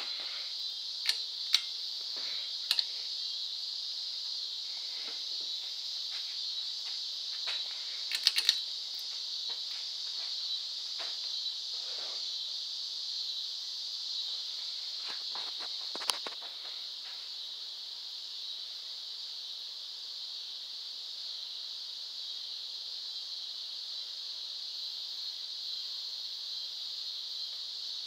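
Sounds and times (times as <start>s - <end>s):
steady high hiss: 0.0s - 28.0s
fan pull-chain switch clicks: 8.1s - 8.6s.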